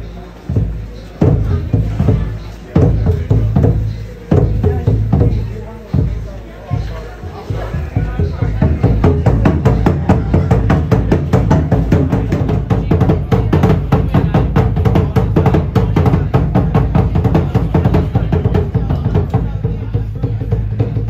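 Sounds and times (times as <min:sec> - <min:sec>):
fast drum beats: 0:00.0 - 0:21.0.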